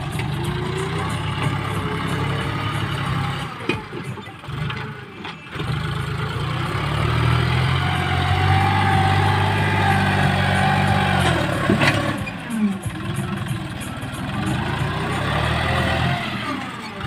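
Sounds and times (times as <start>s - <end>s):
tractor diesel engine: 0.0s - 17.0s.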